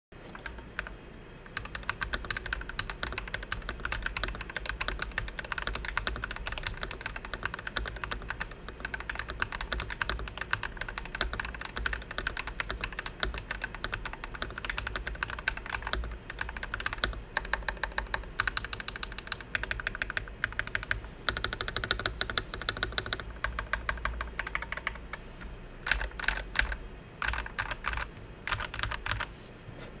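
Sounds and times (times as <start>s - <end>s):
mechanical keyboard typing: 0.3s - 0.9s, 1.5s - 25.2s, 25.8s - 29.3s.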